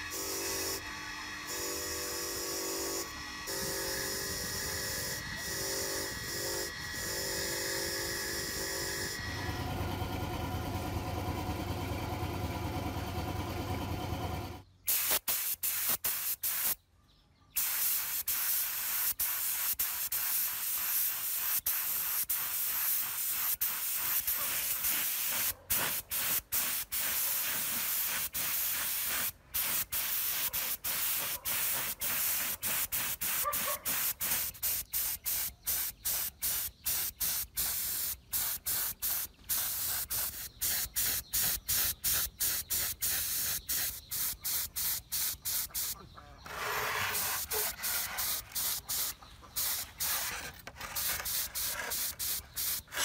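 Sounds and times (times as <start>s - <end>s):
spray paint hissing: 3.5s - 7.7s, 14.9s - 16.8s, 17.6s - 53.0s.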